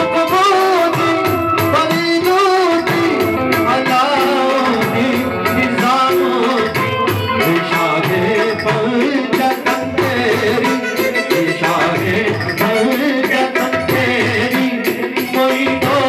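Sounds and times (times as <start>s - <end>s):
keyboard and harmonium melody: 0.0s - 16.0s
person singing: 0.0s - 16.0s
tabla drumming: 0.0s - 16.0s.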